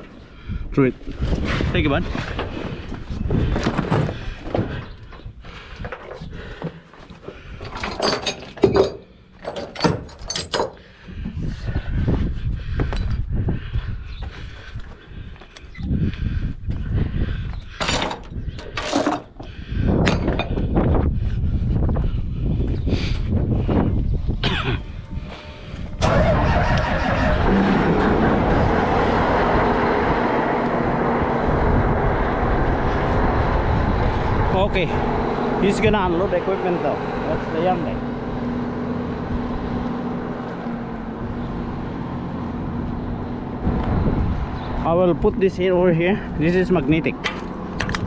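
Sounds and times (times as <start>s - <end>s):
metal chains clanking: 7.6s - 10.8s, 17.8s - 19.4s
low rumbling noise: 19.5s - 48.0s
heavy diesel engine running: 24.8s - 48.0s.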